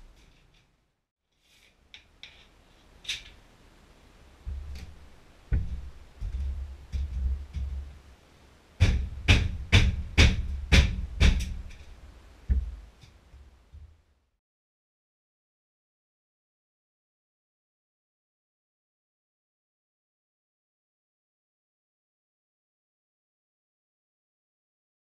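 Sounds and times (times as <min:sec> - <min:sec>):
low thuds and rumbling: 0:04.4 - 0:08.1, 0:08.8 - 0:11.8, 0:12.4 - 0:13.0
sharp knocks: 0:04.5 - 0:08.0, 0:08.8 - 0:11.8, 0:12.5 - 0:13.0.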